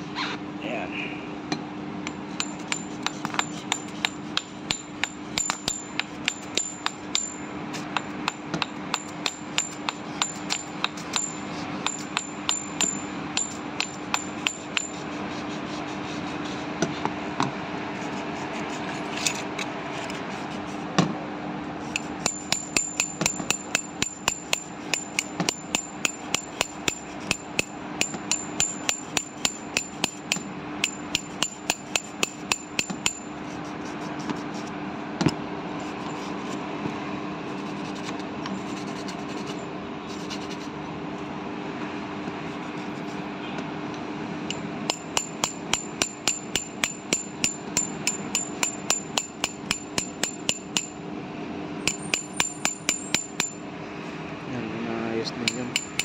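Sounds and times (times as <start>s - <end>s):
metal tapping on bearing: 2.0s - 15.0s, 21.9s - 33.3s, 44.5s - 51.0s, 51.8s - 53.6s, 55.4s - 56.0s.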